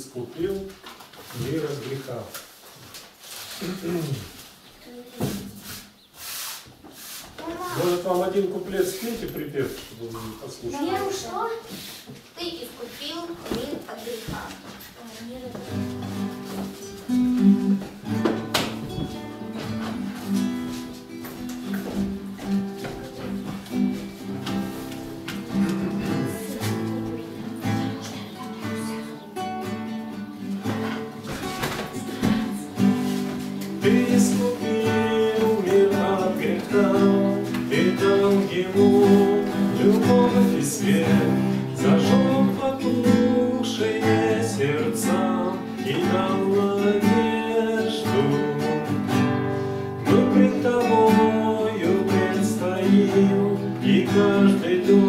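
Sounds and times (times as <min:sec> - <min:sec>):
acoustic guitar chords: 0:15.2 - 0:55.0
man singing: 0:25.4 - 0:28.0, 0:31.9 - 0:55.0.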